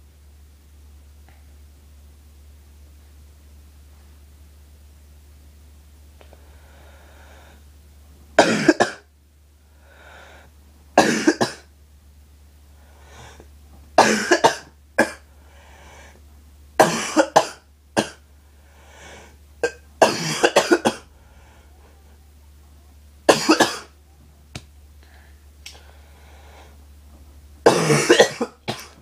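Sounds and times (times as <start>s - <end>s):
person coughing harshly: 8.4s - 9.1s, 11.0s - 11.7s, 14.0s - 15.2s, 16.8s - 18.2s, 19.6s - 21.1s, 23.3s - 23.9s, 27.6s - 29.0s.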